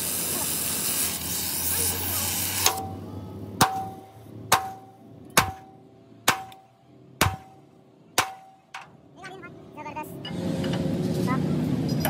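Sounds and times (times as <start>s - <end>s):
hiss: 0.0s - 2.8s.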